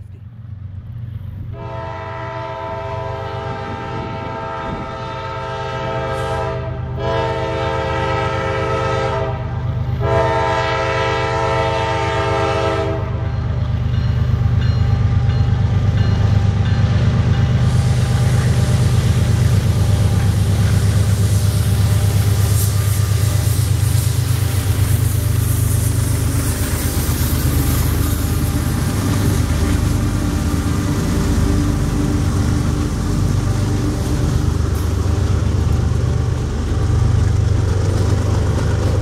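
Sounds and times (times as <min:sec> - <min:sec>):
diesel locomotive drone: 0:00.0 - 0:39.0
locomotive air horn blasts: 0:01.5 - 0:13.3, 0:17.7 - 0:26.6
wheels clicking over rail joints: 0:33.4 - 0:39.0.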